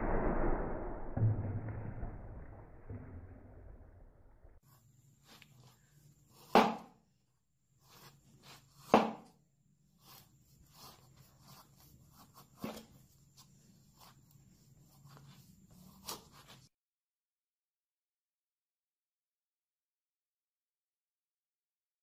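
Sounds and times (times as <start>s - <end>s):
knife chopping wooden sticks: 6.4s - 7.0s, 8.0s - 9.4s, 15.2s - 16.7s.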